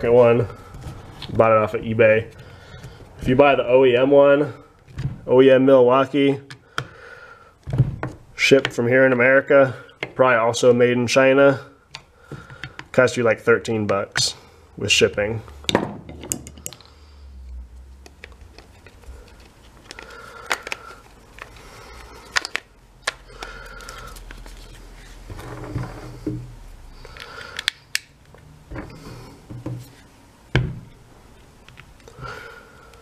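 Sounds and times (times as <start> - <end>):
plastic tool parts clicking: 18.0 - 21.6, 22.2 - 24.4, 27.0 - 28.4.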